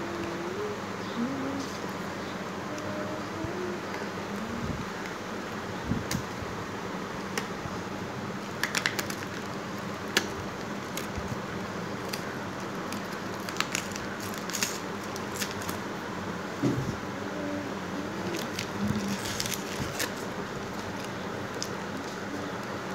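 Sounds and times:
steady background hiss: 0.0 - 22.9.

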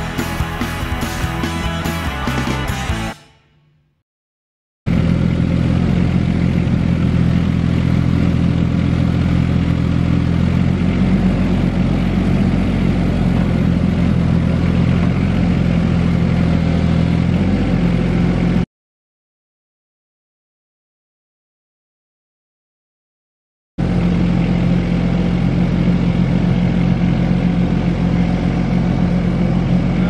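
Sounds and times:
excavator diesel engine running: 0.0 - 3.2, 4.9 - 18.6, 23.8 - 30.0.

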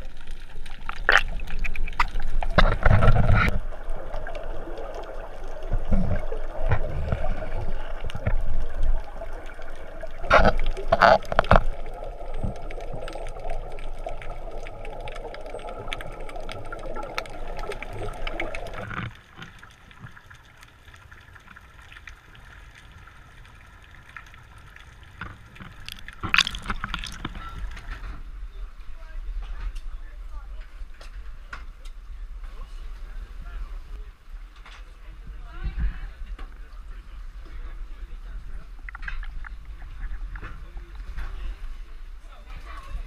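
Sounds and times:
muffled underwater noise: 0.0 - 19.0, 25.8 - 43.0
gurgling bubbles: 0.0 - 28.0.

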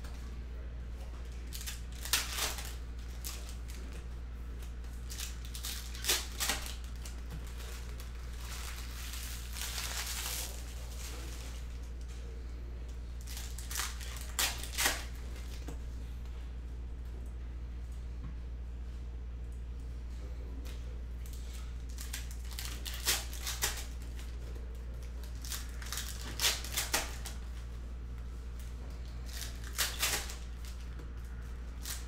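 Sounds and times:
steady low hum: 0.0 - 32.0
wrappers tearing and crinkling: 1.3 - 4.0, 4.6 - 11.9, 13.2 - 15.6, 21.8 - 24.4, 25.0 - 27.6, 29.0 - 32.0.

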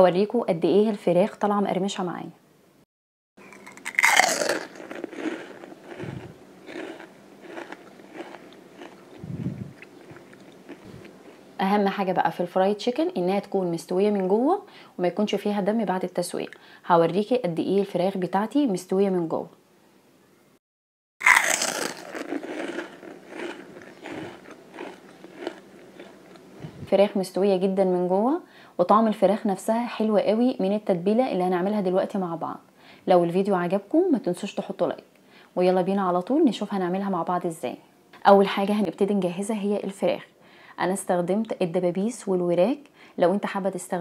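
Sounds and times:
fried chicken crust crunching: 3.5 - 11.4, 21.2 - 26.5.

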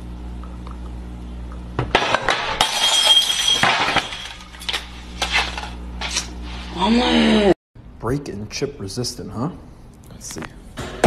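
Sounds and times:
glass vase shattering: 2.0 - 4.9
glass pieces clinking: 2.0 - 5.7.

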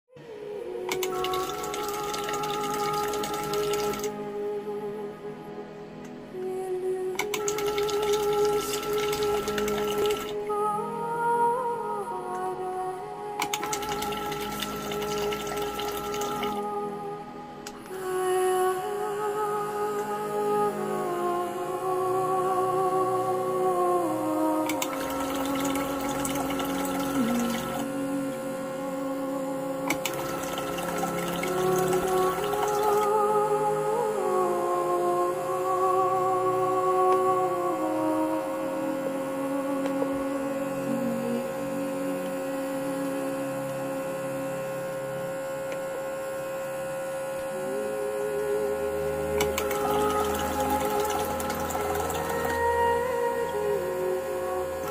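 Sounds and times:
pump motor humming: 0.7 - 4.2, 7.2 - 10.6, 13.4 - 16.8, 24.0 - 36.0, 36.8 - 54.9
pump clicks: 0.9 - 4.1, 7.2 - 10.4, 13.4 - 16.6, 24.7 - 27.9, 29.9 - 33.1, 49.4 - 52.7
water trickling into glass jar: 1.1 - 4.1, 7.4 - 10.4, 13.6 - 16.6, 24.7 - 27.9, 29.9 - 33.1, 49.5 - 52.6.

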